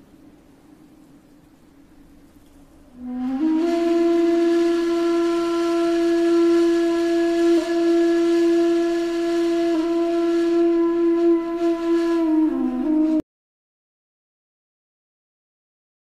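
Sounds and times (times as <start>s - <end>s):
wind instrument long note: 2.9s - 13.2s.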